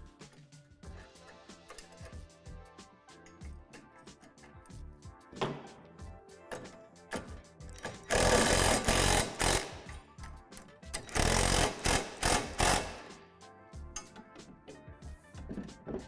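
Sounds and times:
background music: 0:00.0 - 0:16.0
impact driver hammering: 0:06.6 - 0:10.0, 0:11.0 - 0:13.1.

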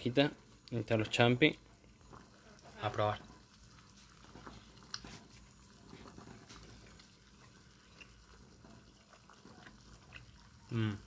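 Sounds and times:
chewing soft wrap: 0:03.5 - 0:11.0.

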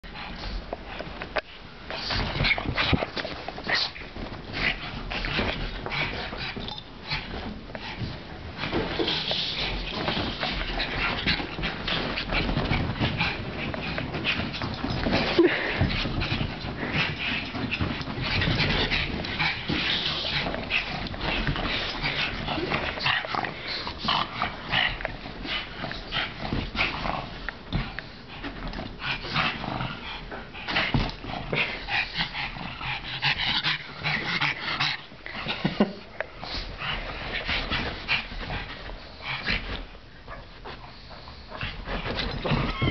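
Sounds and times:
dogs play-fighting noises: 0:00.0 - 0:42.9.

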